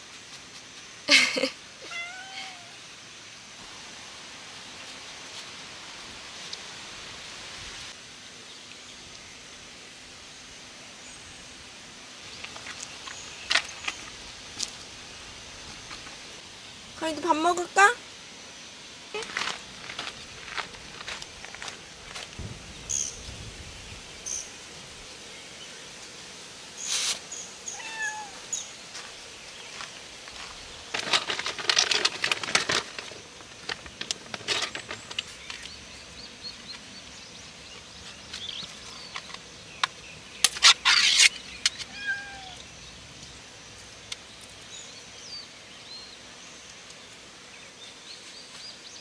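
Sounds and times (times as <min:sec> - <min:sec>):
cat meowing: 0:01.8 - 0:02.8, 0:27.7 - 0:28.4, 0:41.9 - 0:42.6
rustling and handling noise: 0:12.2 - 0:16.4, 0:28.9 - 0:35.9.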